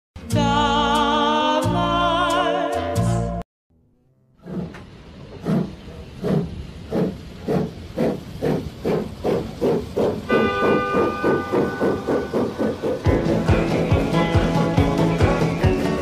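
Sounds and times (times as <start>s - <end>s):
steam locomotive exhaust chuffs: 4.4s - 16.0s
steam whistle: 10.3s - 14.2s.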